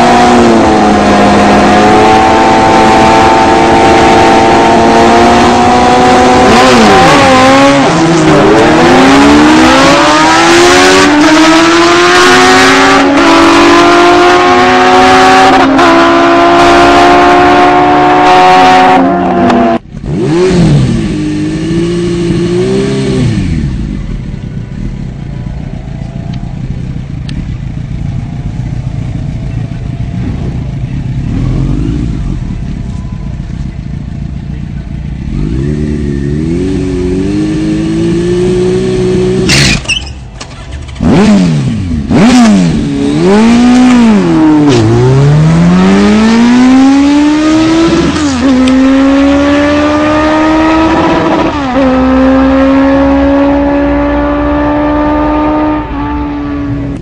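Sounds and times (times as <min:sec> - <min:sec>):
sport bike engine revving: 0:00.0 - 0:25.9, 0:29.4 - 0:32.7, 0:35.1 - 0:57.0
engine idling: 0:24.0 - 0:31.3.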